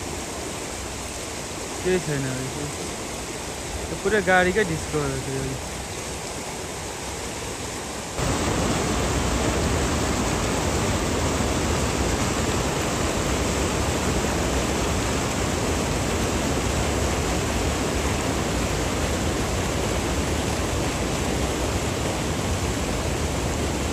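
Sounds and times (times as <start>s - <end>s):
river rushing: 0.0s - 23.9s.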